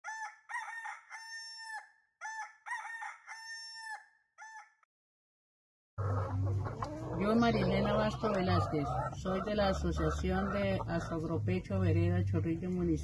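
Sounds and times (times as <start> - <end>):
rooster crowing: 0.0 - 4.8.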